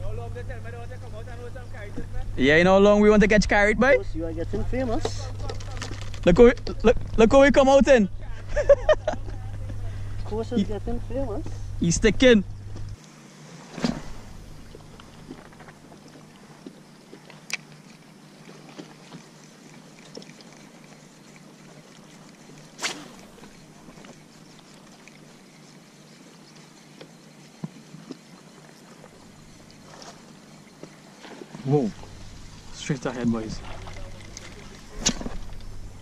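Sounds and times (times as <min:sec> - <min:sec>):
small waves lapping against hull: 0:12.7 - 0:36.0.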